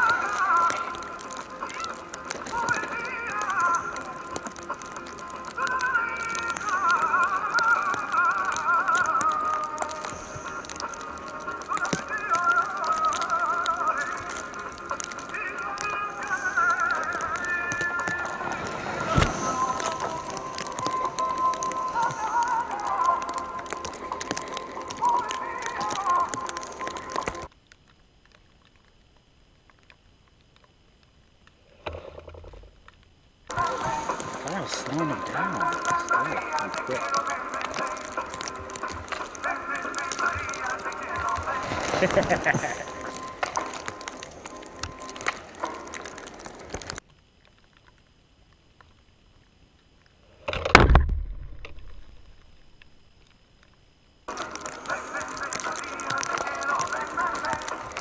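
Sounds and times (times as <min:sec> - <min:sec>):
background music: 0:00.0 - 0:27.5, 0:33.5 - 0:47.0, 0:54.3 - 0:58.0
faint hiss with clicks: 0:00.0 - 0:58.0
whoosh of skis on snow: 0:16.2 - 0:27.5, 0:33.5 - 0:47.0
skier rushing past: 0:17.8 - 0:22.4.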